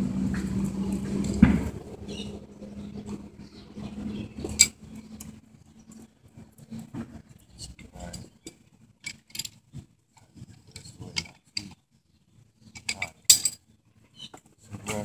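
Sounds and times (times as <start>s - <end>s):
metallic clicks and rattles: 8.0s - 9.6s.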